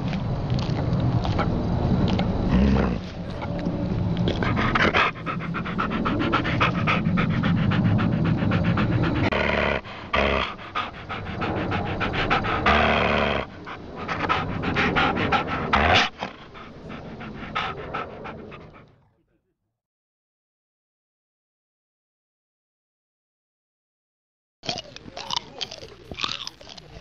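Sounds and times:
dog panting: 2.1s - 19.1s, 24.7s - 27.0s.

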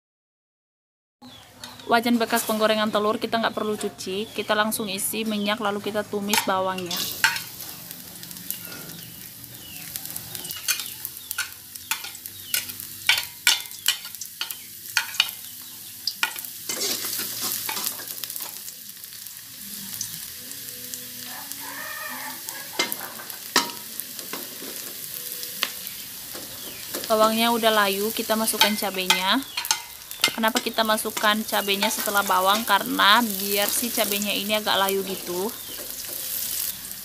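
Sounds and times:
shallots sizzling in hot oil: 2.0s - 37.0s
metal spatula scraping a pan: 5.4s - 15.5s, 16.2s - 18.6s, 22.3s - 25.0s, 28.4s - 34.2s.

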